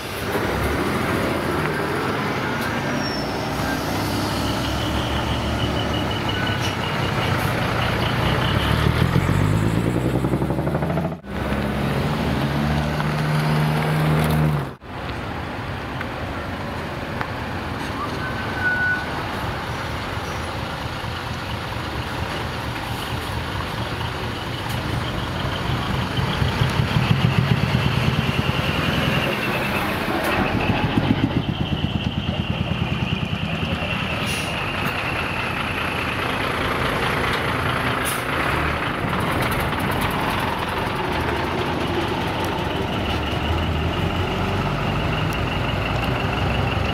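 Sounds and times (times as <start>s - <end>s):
truck diesel engines revving: 0.0s - 46.9s
engine with throbbing exhaust: 7.6s - 14.8s, 20.0s - 46.9s.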